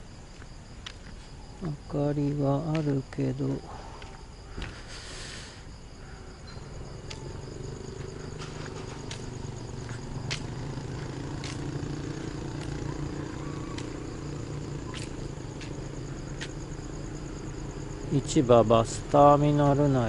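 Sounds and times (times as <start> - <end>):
insects trilling: 0.0 - 20.0
footsteps on pavement: 0.2 - 3.2, 3.8 - 5.0, 6.8 - 17.5
low engine hum: 6.5 - 20.0.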